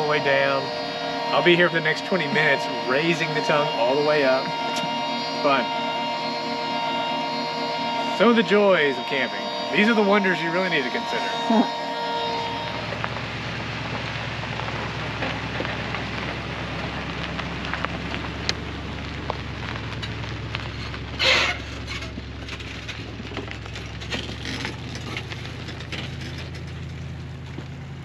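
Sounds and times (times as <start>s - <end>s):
light crackles and crunches: 11.6s - 28.0s
pickup truck engine idling: 11.7s - 28.0s.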